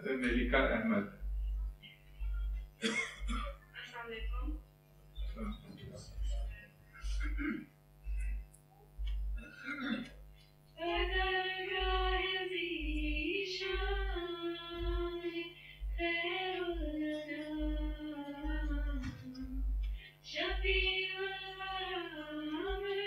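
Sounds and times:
woman singing unaccompanied: 10.8 - 23.0.

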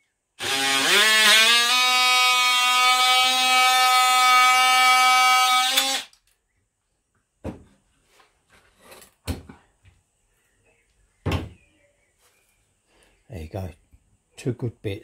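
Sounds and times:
multi-tool cutting plastic: 0.4 - 6.3
tool knocks and handling: 7.4 - 7.8.

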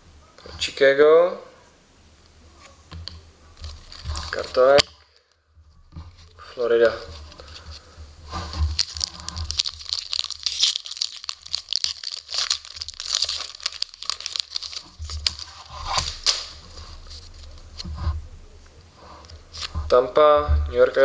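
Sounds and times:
foil wrapper crinkling: 3.6 - 5.4, 6.2 - 17.8.

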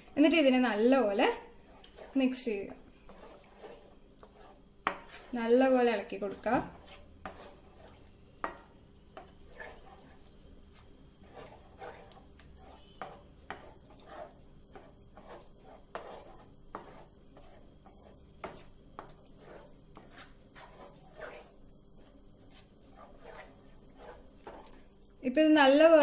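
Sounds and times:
wooden spatula scraping a pan: 0.0 - 26.0.

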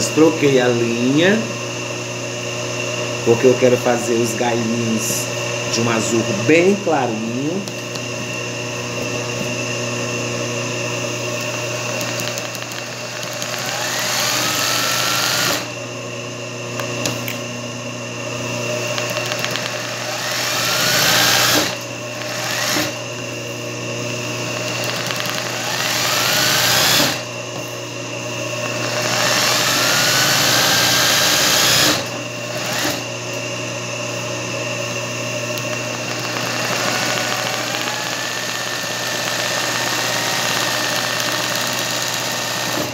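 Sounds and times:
steady motor hum: 0.0 - 42.9
sewing machine stitching: 11.9 - 15.7, 19.0 - 23.0, 24.6 - 27.2, 28.8 - 33.0, 36.0 - 42.9.

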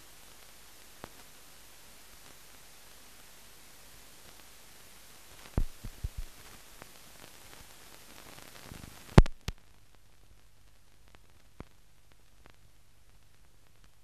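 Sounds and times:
film soundtrack hiss: 0.0 - 14.0
low thumps: 5.6 - 6.3.

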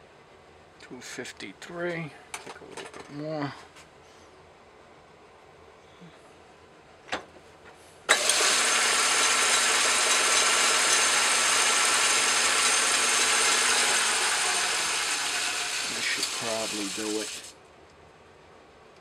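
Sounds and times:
metal lathe running: 8.1 - 17.5.

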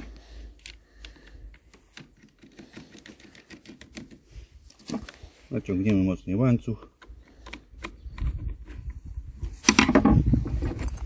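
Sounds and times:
small plastic clicks and rattles: 0.5 - 4.2.

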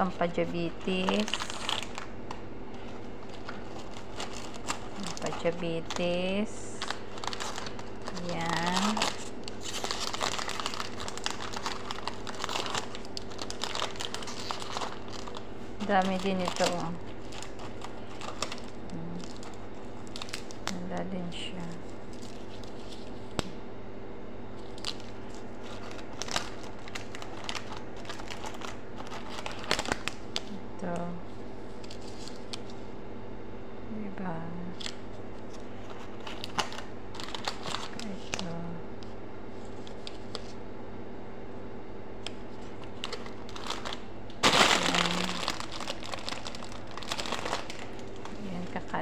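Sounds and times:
plastic wrappers crinkling: 0.0 - 23.6, 24.6 - 30.6, 31.4 - 32.8, 34.7 - 40.6, 42.2 - 49.0
steady low hum: 0.0 - 49.0.

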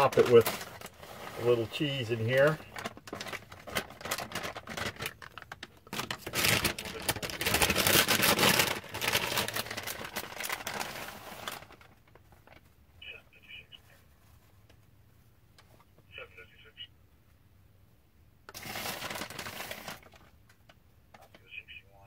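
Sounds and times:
plastic bag crinkling: 0.0 - 12.7, 18.5 - 20.4.

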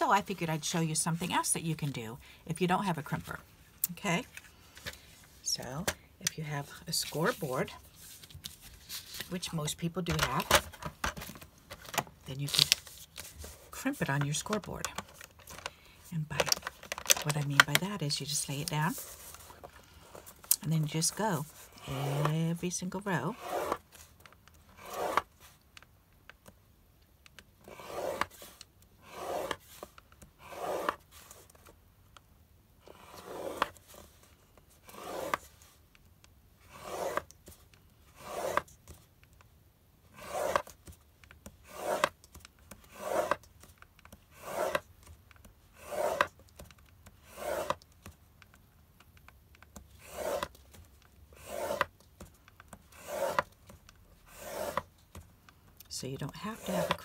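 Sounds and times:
stylus scoring cardstock: 20.6 - 23.8, 51.4 - 51.9, 52.9 - 53.6, 56.2 - 57.0.

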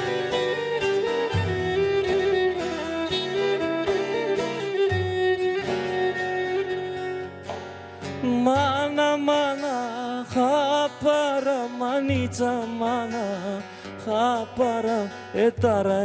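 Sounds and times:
bowed lyra melody: 0.0 - 10.6
strummed acoustic guitar: 0.0 - 16.0
man singing: 8.1 - 16.0.

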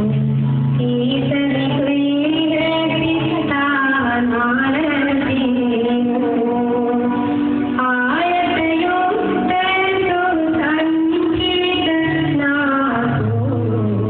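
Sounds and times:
instrumental accompaniment: 0.0 - 14.0
woman singing: 0.0 - 14.0.

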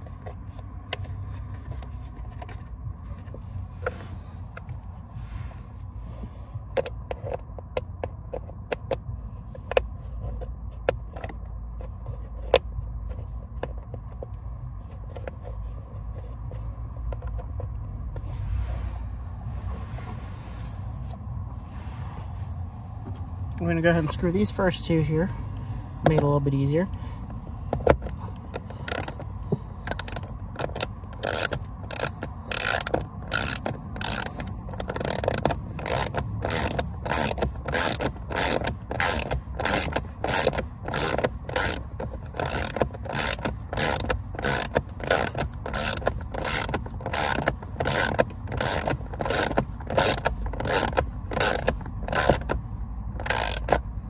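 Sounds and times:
ratcheting wrench clicking: 27.8 - 52.6, 53.2 - 53.9.

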